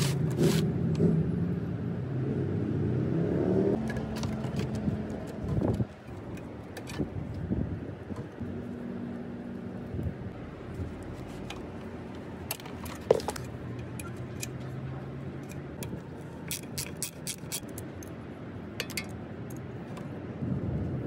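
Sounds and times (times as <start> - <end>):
steady background noise: 3.7 - 21.0
metal parts and wrench clinking: 12.4 - 19.7.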